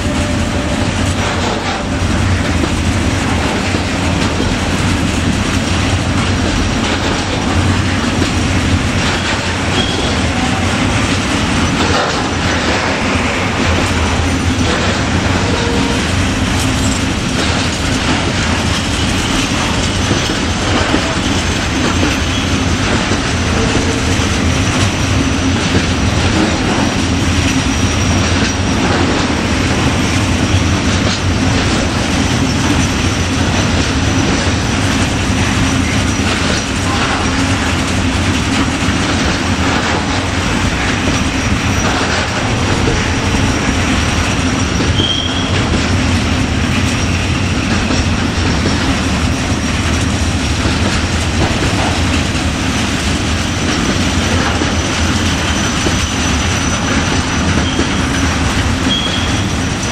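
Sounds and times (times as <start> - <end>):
freight train wagons rolling: 0.0 - 59.9
high wheel squeal: 9.2 - 10.8, 15.2 - 16.2, 21.2 - 22.7, 27.6 - 28.8, 40.7 - 45.7, 55.4 - 59.9.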